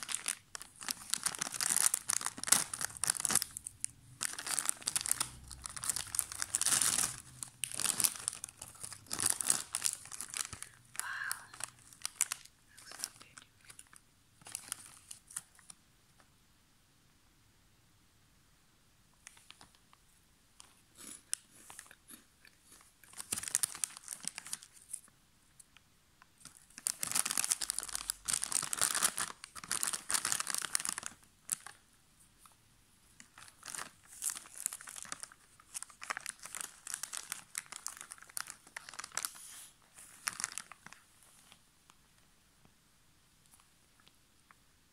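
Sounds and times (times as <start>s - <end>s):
snack packet crinkling: 0.0s - 15.8s, 20.6s - 25.8s, 26.4s - 31.8s, 33.2s - 41.6s.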